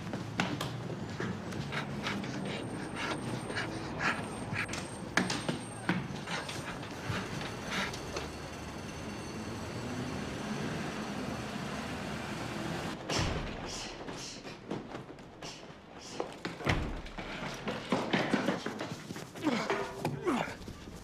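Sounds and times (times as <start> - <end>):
doors banging open: 16.6 - 18.6.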